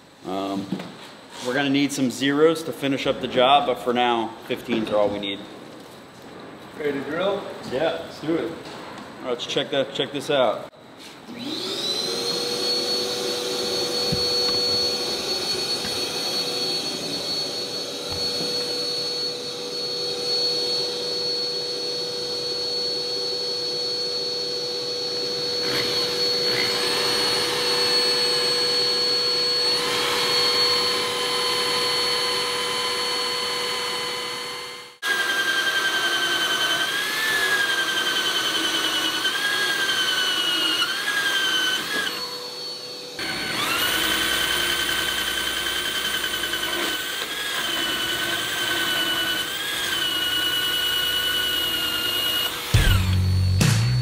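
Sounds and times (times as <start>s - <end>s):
electric drill running: 11.3s - 53.6s.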